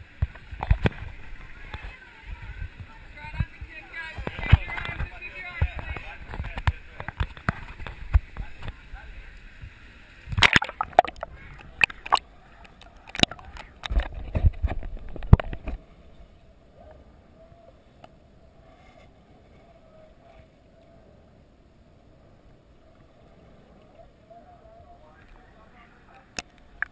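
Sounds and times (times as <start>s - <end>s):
water splashing against camera: 0.0s - 16.4s, 23.1s - 26.9s
muffled underwater hush: 0.0s - 26.9s.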